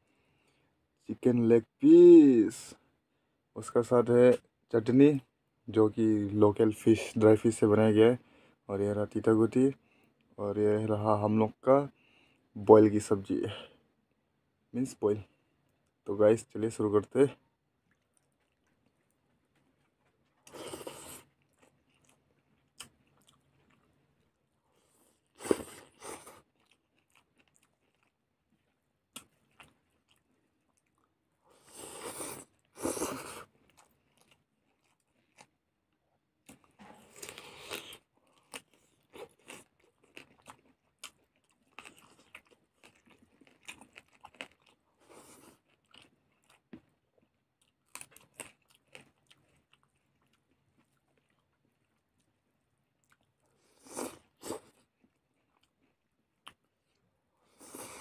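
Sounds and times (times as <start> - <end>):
person chewing and crunching: 17.8 - 35.6, 36.4 - 58.0.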